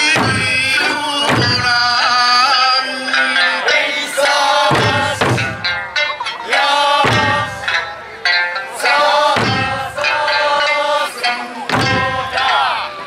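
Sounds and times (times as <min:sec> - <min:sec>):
heavy barrel drum strikes: 0:00.0 - 0:02.0, 0:04.7 - 0:06.0, 0:07.0 - 0:07.8, 0:09.3 - 0:10.0, 0:11.7 - 0:12.4
group drumming: 0:00.0 - 0:02.6, 0:03.8 - 0:13.0
folk song singing: 0:00.0 - 0:13.0.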